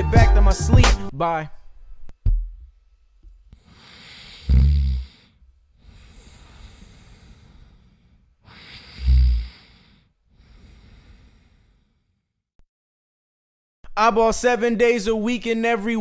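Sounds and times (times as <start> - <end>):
person snoring: 3.6 - 12.2.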